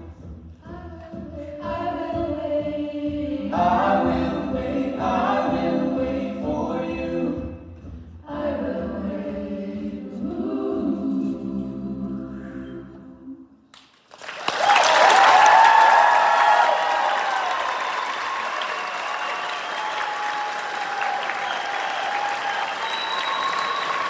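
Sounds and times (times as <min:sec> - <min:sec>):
a cappella group singing: 0:00.1 - 0:13.6
audience applause and cheering: 0:13.8 - 0:24.0.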